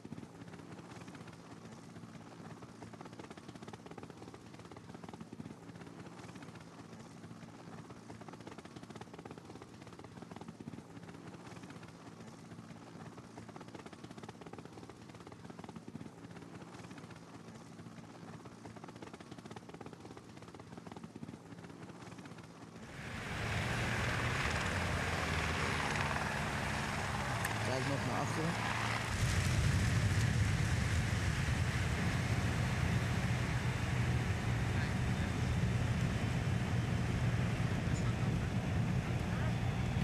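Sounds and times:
low engine drone: 0:22.8 - 0:40.0.

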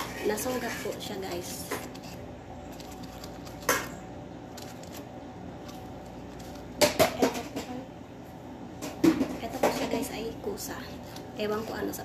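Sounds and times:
vegetable corer scraping and clicking: 0:00.0 - 0:07.0
steady background hum: 0:00.0 - 0:12.0.

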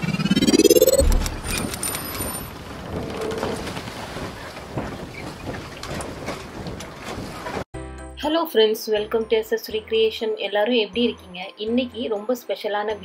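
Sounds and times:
rising whoosh: 0:00.0 - 0:02.0
deep boom: 0:00.9 - 0:01.7.

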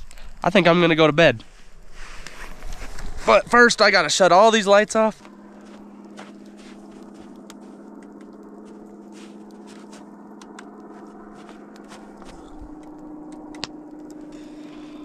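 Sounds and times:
light crackles and crunches: 0:00.0 - 0:15.0
steady hum: 0:00.0 - 0:15.0.

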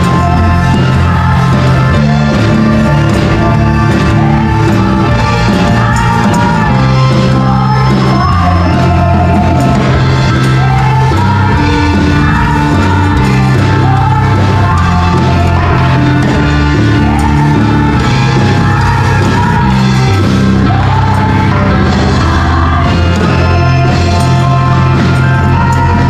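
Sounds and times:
bass line: 0:00.0 - 0:26.0
live gospel band: 0:00.0 - 0:26.0
women singing: 0:00.0 - 0:26.0.

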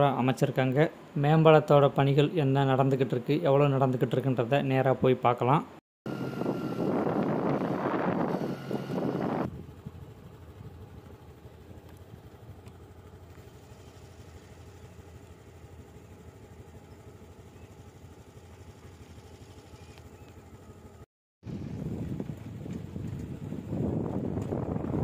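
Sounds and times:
vehicle engine running: 0:06.1 - 0:25.0
wind buffeting microphone: 0:06.3 - 0:11.0, 0:21.4 - 0:25.0.

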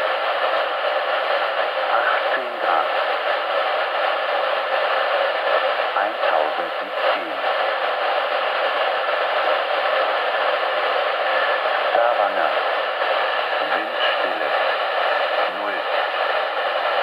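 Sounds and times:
radio static hiss: 0:00.0 - 0:17.0
faint radio speech: 0:01.6 - 0:17.0.

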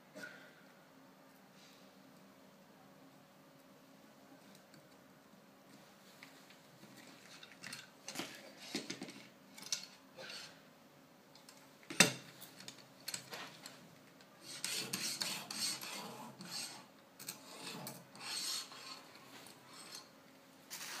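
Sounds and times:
sharpening stone rasping on knife: 0:14.4 - 0:19.0.

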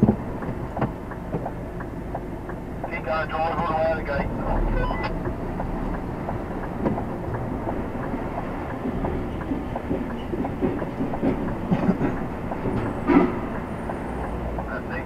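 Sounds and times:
diesel engine running: 0:00.0 - 0:15.0
rattles and knocks from cab: 0:05.2 - 0:13.7.

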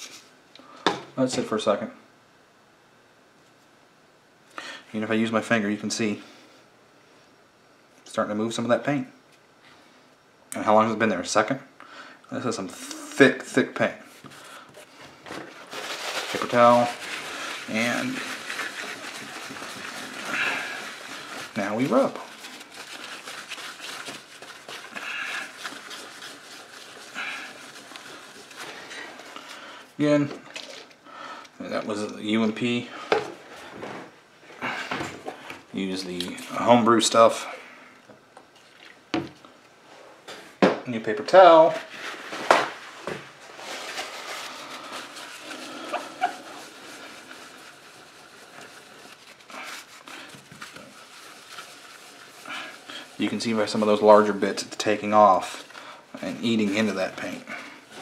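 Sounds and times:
paper towel rubbing on tile: 0:14.1 - 0:29.6, 0:41.6 - 0:58.0.

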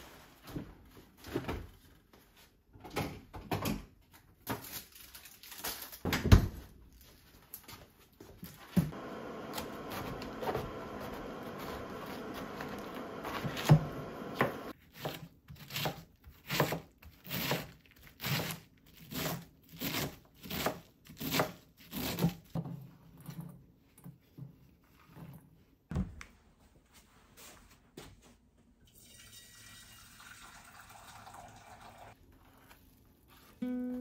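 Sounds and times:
knife chopping cabbage on board: 0:09.5 - 0:22.6.

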